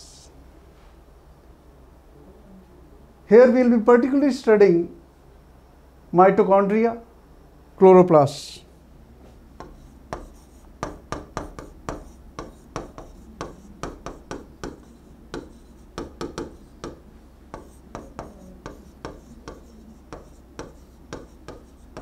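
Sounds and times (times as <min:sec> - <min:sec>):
stylus tapping on glass: 0:09.6 - 0:17.0.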